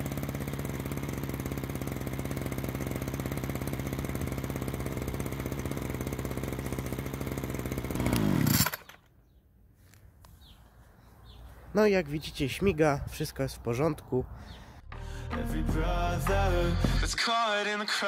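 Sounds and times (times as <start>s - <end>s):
string trimmer engine idling: 0.0s - 9.2s.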